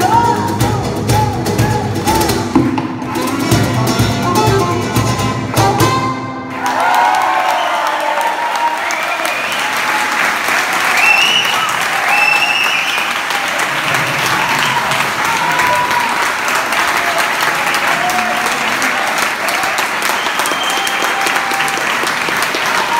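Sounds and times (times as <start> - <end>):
audience applauding: 6.4 - 22.9
audience cheering and shouting: 6.4 - 22.9.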